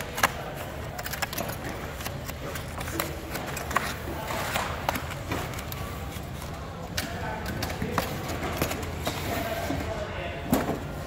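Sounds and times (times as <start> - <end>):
faint voices: 0.0 - 11.0.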